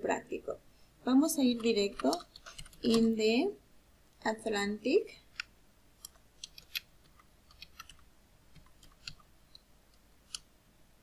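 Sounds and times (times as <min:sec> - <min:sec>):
computer keyboard typing: 0:01.5 - 0:03.1, 0:05.3 - 0:09.2.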